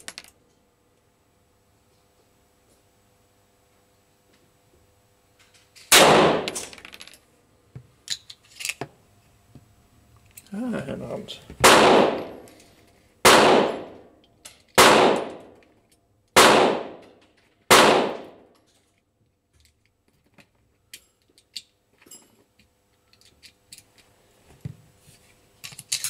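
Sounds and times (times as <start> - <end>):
pistol shots: 5.9 - 6.7, 11.6 - 12.5, 13.2 - 14.0, 14.8 - 15.5, 16.4 - 17.0, 17.7 - 18.4.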